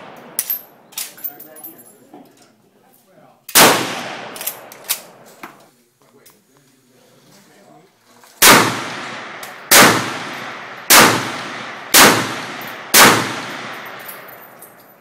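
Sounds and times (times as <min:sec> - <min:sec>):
rifle shots with echo: 0:03.5 - 0:05.3, 0:08.4 - 0:14.5.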